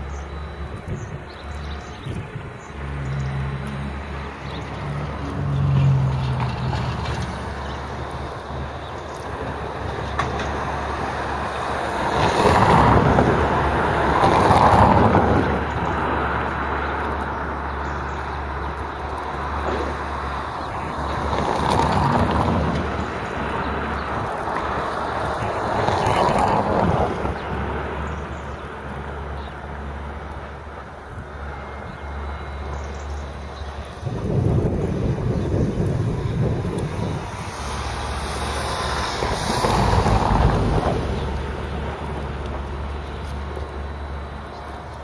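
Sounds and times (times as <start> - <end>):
machinery engine drone: 0.0 - 45.0
rushing noise: 30.7 - 45.0.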